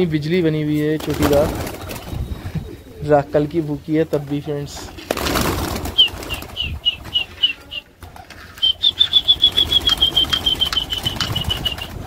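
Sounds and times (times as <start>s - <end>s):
pigeons flapping wings: 1.0s - 2.7s, 4.2s - 12.0s.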